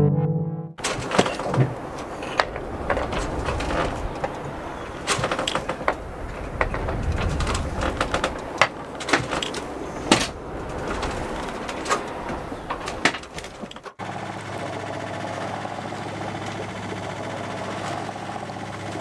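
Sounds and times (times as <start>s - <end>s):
deck gear knocking and clattering: 0.8s - 14.0s.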